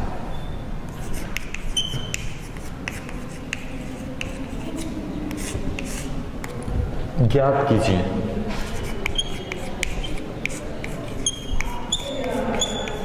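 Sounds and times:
high chalk squeak: 0.3 - 6.1, 8.6 - 13.0
chalk writing on blackboard: 0.9 - 6.6, 8.5 - 13.0.

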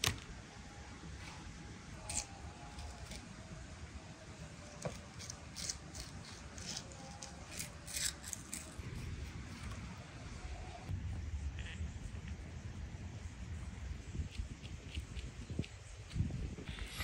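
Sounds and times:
low steady rumble: 0.0 - 17.0
sharp scraping strokes: 16.7 - 17.0.

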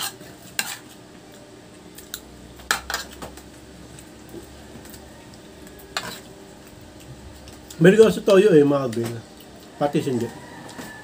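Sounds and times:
cutlery clinking on steel tray: 2.1 - 3.4, 6.0 - 6.3.

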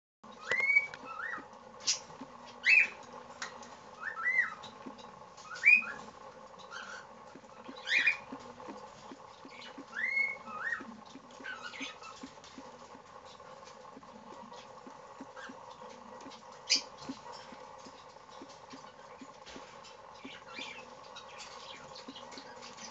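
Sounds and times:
bird nibbling ticks: 0.3 - 22.9
cockatiel chirping: 0.4 - 3.0, 4.0 - 6.0, 6.6 - 8.4, 9.4 - 12.3.

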